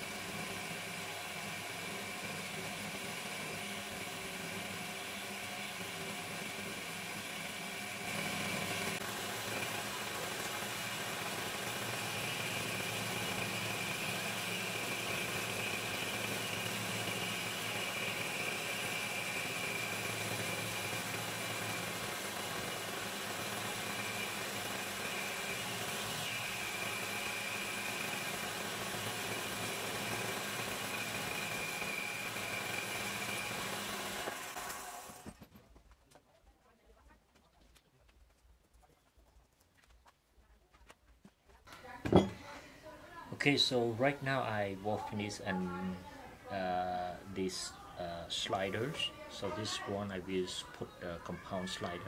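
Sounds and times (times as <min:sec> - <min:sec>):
motor humming: 0:00.0 - 0:35.4.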